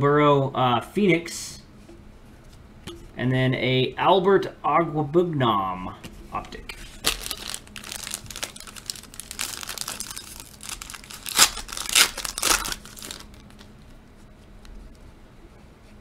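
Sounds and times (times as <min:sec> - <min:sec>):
foil wrapper ripping: 0:06.8 - 0:13.7
foil wrapper crinkling: 0:06.8 - 0:14.0.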